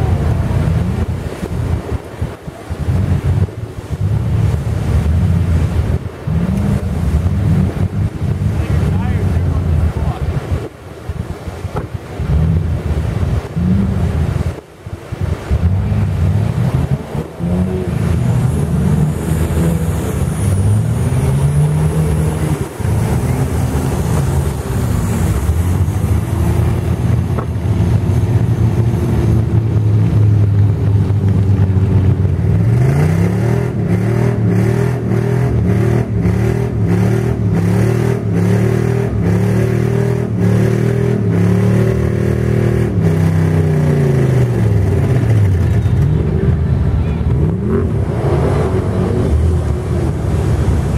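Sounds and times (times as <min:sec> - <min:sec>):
off-road vehicle engines revving: 0:00.0 - 0:50.9
suv engine passing: 0:15.4 - 0:50.9.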